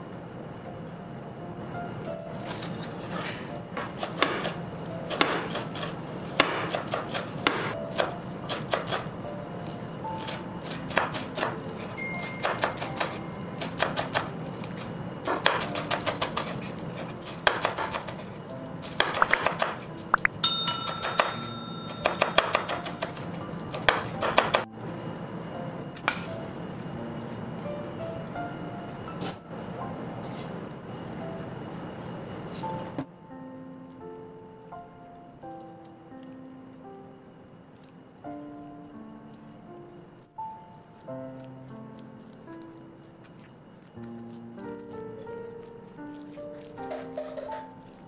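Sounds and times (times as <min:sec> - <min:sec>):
knife chopping on cutting board: 0:02.6 - 0:09.0, 0:22.0 - 0:24.6.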